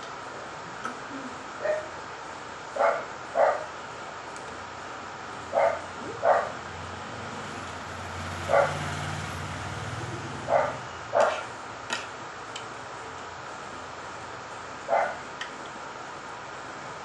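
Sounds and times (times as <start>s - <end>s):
dog barking: 1.6s - 1.9s, 2.8s - 3.7s, 5.5s - 6.6s, 8.5s - 8.9s, 10.5s - 11.5s, 14.9s - 15.2s.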